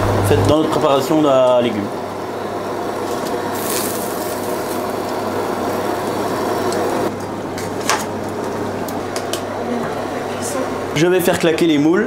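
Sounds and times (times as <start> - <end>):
kitchen ventilation drone: 0.0 - 12.0.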